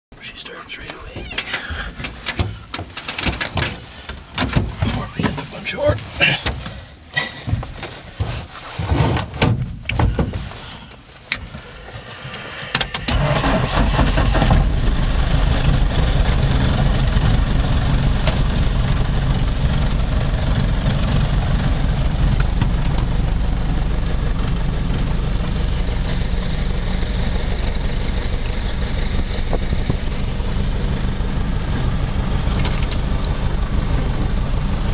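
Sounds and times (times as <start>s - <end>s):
piston engine idling: 11.2s - 34.9s
plane engine starting clicks: 12.3s - 14.8s.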